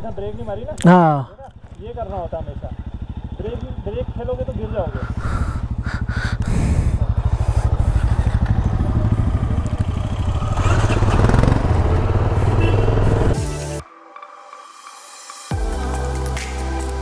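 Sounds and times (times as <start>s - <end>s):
motorcycle engine running: 0.0s - 13.6s.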